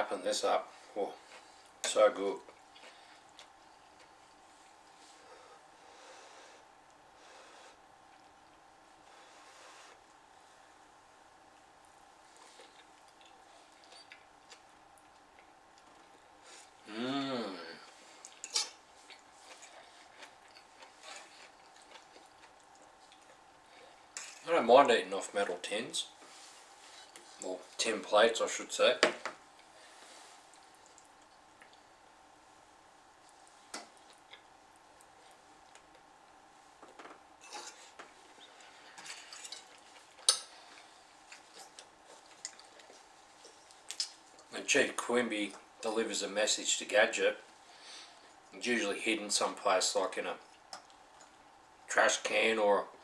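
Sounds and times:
faint chewing: 0:01.2 - 0:05.8, 0:11.5 - 0:16.8, 0:17.8 - 0:24.5, 0:29.5 - 0:32.1, 0:33.2 - 0:44.6, 0:50.4 - 0:51.6.

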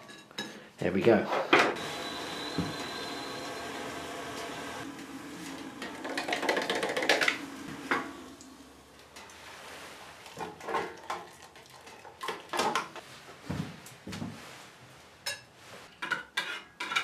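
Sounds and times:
hot water pouring into mug: 0:01.8 - 0:10.4.

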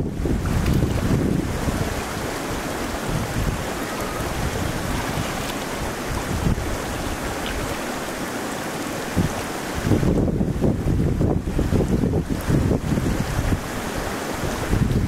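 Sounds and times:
wind buffeting microphone: 0:00.0 - 0:08.3, 0:09.0 - 0:15.0
river water over stones: 0:00.0 - 0:15.0
splashing in water: 0:00.3 - 0:09.6.

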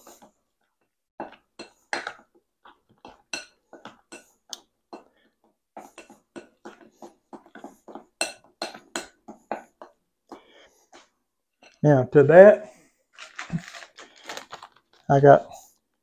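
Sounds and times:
spoon stirring batter in glass bowl: 0:00.0 - 0:11.8.

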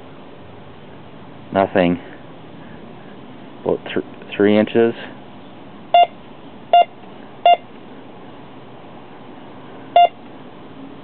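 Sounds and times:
metal detector beeping: 0:06.0 - 0:07.7, 0:10.0 - 0:10.2.

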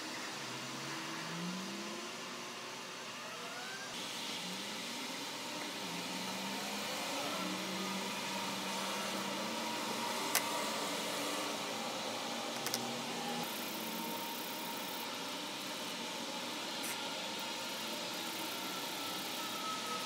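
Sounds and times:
plastic clicks: 0:12.6 - 0:12.9.

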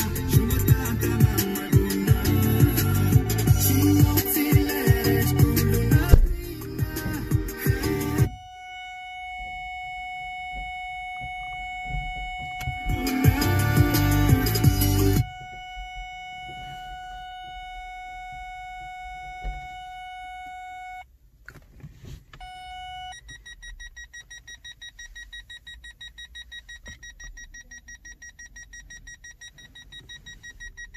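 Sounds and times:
rapid high-pitched beeping: 0:00.0 - 0:08.6, 0:10.6 - 0:16.8
continuous parking sensor tone: 0:00.0 - 0:21.6, 0:22.3 - 0:30.9.

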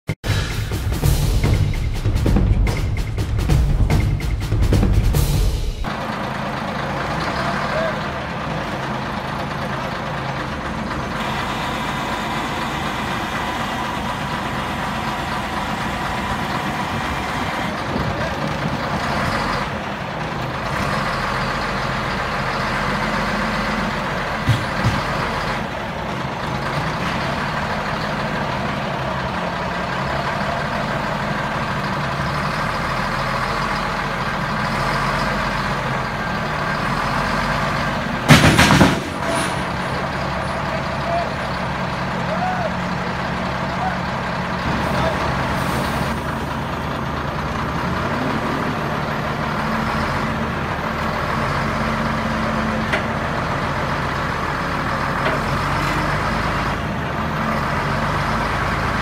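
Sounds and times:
diesel engine running: 0:00.2 - 0:59.0
sharp knocks: 0:24.4 - 0:25.2, 0:38.3 - 0:39.7.

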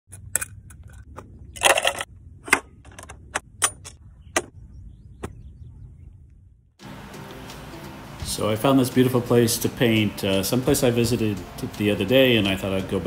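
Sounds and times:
short rattle: 0:00.1 - 0:04.5
low steady rumble: 0:00.1 - 0:11.6.

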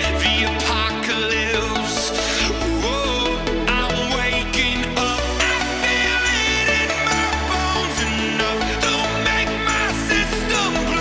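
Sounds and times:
electronic music with deep bass: 0:00.0 - 0:11.0.

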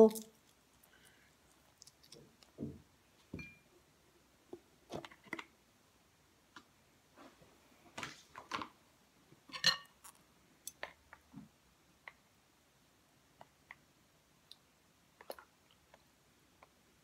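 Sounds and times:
tableware clinking: 0:03.4 - 0:03.6, 0:09.5 - 0:10.0.

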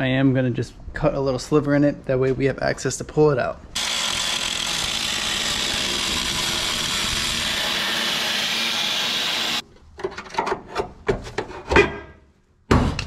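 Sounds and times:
angle grinder cutting sheet metal: 0:03.8 - 0:09.6.

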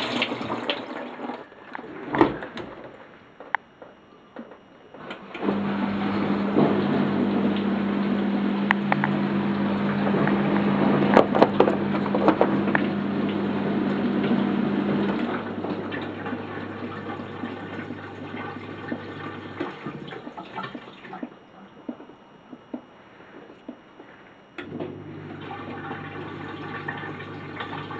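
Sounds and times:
water gurgling: 0:00.0 - 0:01.5, 0:05.8 - 0:21.5
dishwasher pump running: 0:00.0 - 0:03.0, 0:05.0 - 0:22.1, 0:24.6 - 0:27.9.

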